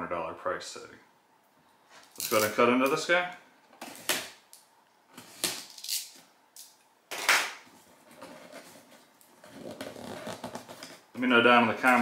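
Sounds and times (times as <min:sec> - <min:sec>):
cardboard rustling: 0:07.8 - 0:11.0.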